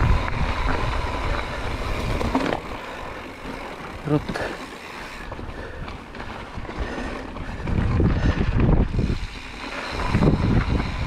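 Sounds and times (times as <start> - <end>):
bike rattling: 0.0 - 11.0
tyres crunching over gravel: 0.1 - 11.0.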